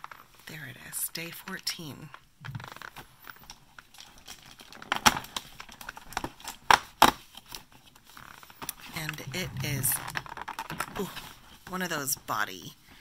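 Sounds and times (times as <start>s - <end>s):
sharp cardboard clicks: 4.6s - 7.6s.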